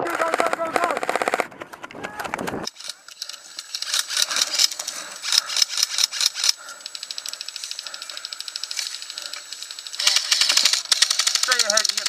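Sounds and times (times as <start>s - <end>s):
airsoft rifle full-auto burst: 0.0s - 1.5s, 2.6s - 12.0s
airsoft guns firing: 0.0s - 6.7s, 9.1s - 12.0s.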